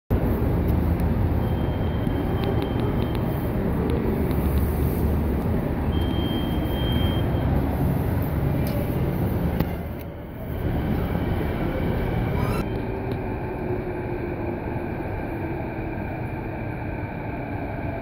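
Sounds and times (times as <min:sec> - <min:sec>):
steady low rumble: 0:00.1 - 0:06.1, 0:07.5 - 0:18.0
card reader high beep: 0:06.0 - 0:07.3.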